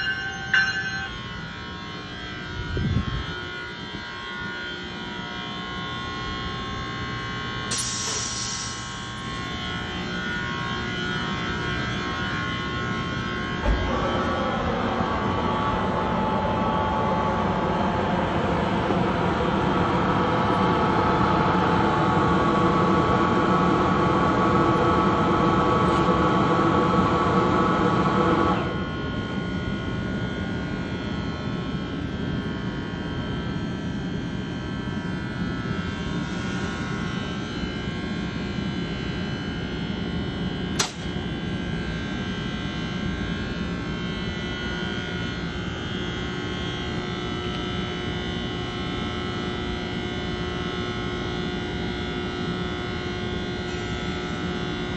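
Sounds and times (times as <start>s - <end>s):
locomotive fans whining hum: 0.0s - 54.9s
sharp click: 40.7s - 41.1s.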